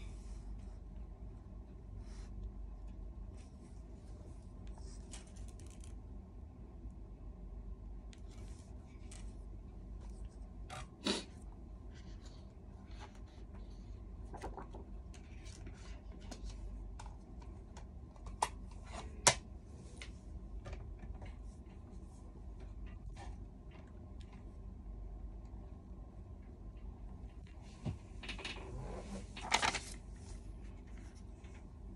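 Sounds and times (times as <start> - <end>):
pages turning: 4.7 - 6.0, 14.2 - 16.6, 29.0 - 31.1
paper rustling: 4.7 - 6.0, 14.2 - 16.6, 29.2 - 31.5.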